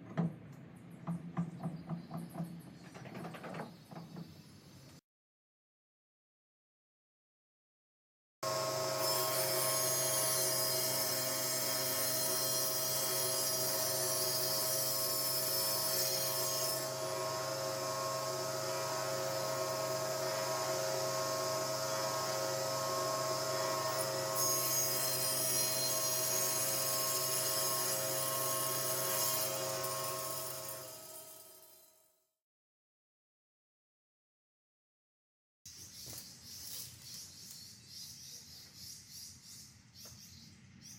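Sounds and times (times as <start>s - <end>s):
hand saw rasping through wood: 8.5s - 31.3s.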